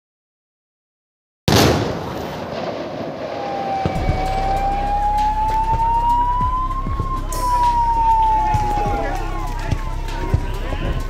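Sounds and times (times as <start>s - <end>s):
emergency vehicle siren wailing: 2.8s - 11.0s
deep thuds: 3.7s - 11.0s.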